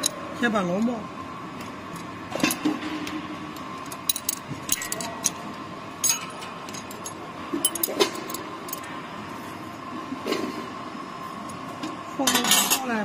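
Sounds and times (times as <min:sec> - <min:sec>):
spanner clinking on metal nuts: 0:03.8 - 0:05.4, 0:06.0 - 0:08.8.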